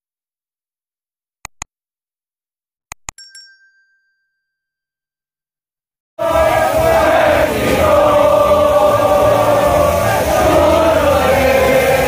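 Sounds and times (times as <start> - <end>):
quick clicks: 1.4 - 1.7, 2.9 - 3.2.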